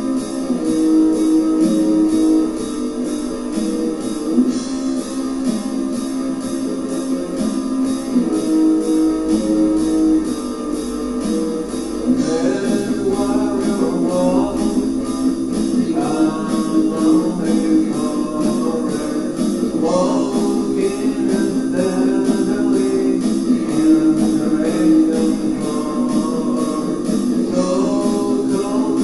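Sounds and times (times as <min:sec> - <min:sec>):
steady drumbeat: 0:00.0 - 0:29.0
sustained guitar chords: 0:00.0 - 0:29.0
person singing: 0:12.0 - 0:29.0.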